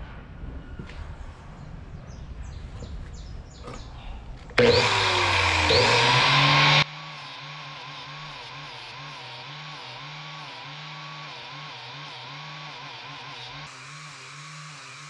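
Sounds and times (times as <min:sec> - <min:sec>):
angle grinder grinding steel: 0:04.6 - 0:15.0.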